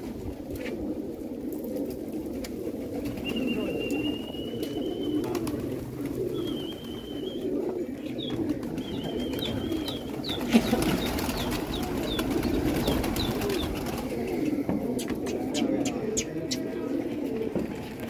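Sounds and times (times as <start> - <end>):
pigeon wings flapping: 0.0 - 15.6
pigeons cooing: 0.0 - 18.0
high whistles and chirps: 3.2 - 5.2, 6.4 - 7.4, 8.8 - 10.1.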